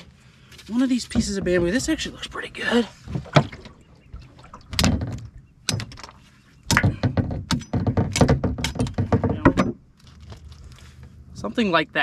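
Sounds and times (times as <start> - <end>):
bamboo pole clacking and rattling: 4.6 - 10.7.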